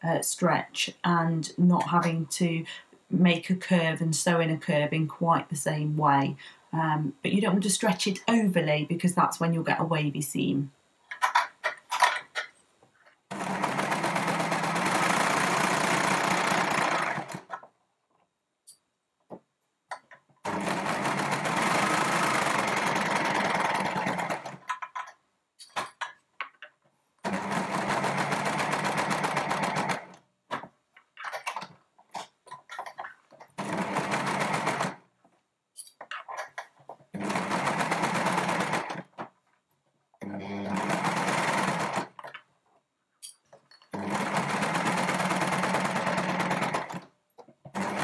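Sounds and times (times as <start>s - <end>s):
overlocker stitching: 13.3s - 17.7s, 20.0s - 26.0s, 27.2s - 35.0s, 35.8s - 39.3s, 40.2s - 42.4s, 43.8s - 47.1s, 47.7s - 48.0s.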